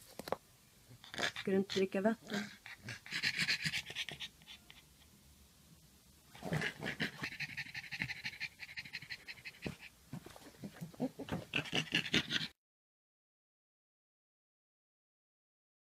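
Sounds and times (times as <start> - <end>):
dog panting: 1.0 - 5.1, 6.4 - 12.5.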